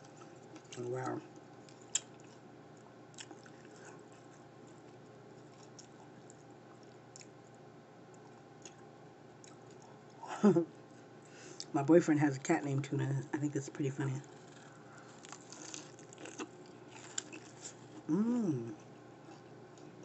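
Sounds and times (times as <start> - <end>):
person chewing food: 0.0 - 10.2, 14.4 - 20.0.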